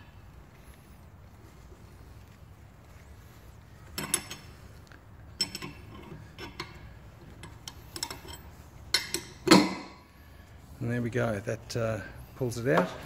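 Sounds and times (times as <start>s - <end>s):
spanner clinking on threaded screw: 5.4s - 6.8s, 7.4s - 9.8s.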